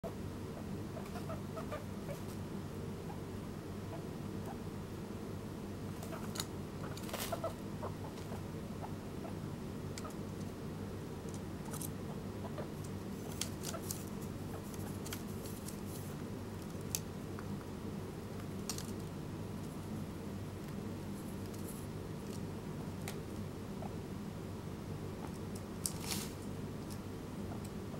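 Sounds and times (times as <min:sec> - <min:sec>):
steady low hum: 0:00.0 - 0:27.9
guinea pig clicks and scratches: 0:06.0 - 0:10.6, 0:11.2 - 0:17.7, 0:20.6 - 0:23.9, 0:25.2 - 0:27.9.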